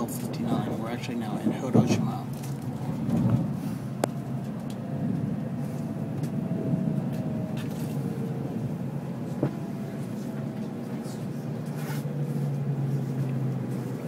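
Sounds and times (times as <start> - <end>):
train interior rumble: 0.0 - 14.0.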